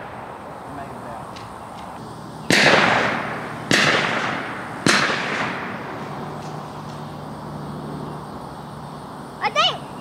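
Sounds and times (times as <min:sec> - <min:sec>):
shotgun shot: 0:00.0 - 0:00.5, 0:02.5 - 0:06.0.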